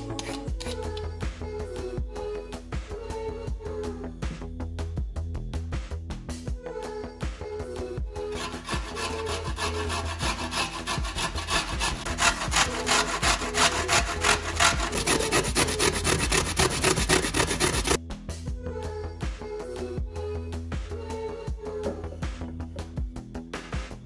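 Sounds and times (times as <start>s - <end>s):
carrot grated on metal grater: 8.3s - 18.0s.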